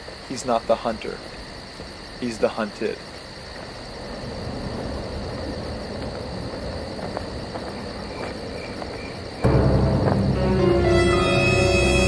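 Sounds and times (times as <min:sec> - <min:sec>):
crickets chirping: 0:00.0 - 0:12.0
dramatic music: 0:09.4 - 0:12.0.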